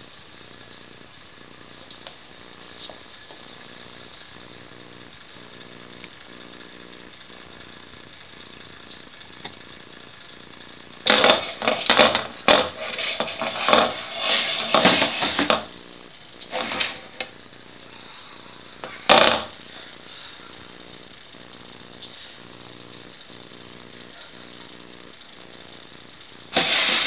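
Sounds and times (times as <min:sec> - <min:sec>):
clock scraping on wooden floor: 0:11.1 - 0:15.7, 0:16.5 - 0:17.3, 0:26.5 - 0:27.0.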